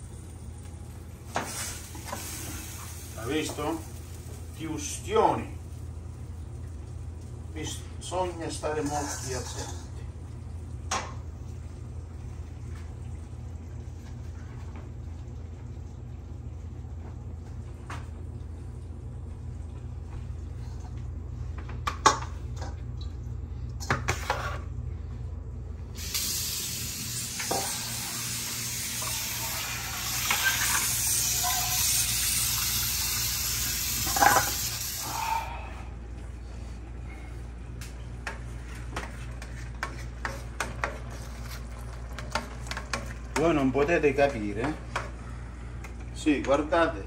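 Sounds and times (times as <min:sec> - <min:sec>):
faucet running into sink: 0:26.0 - 0:35.0.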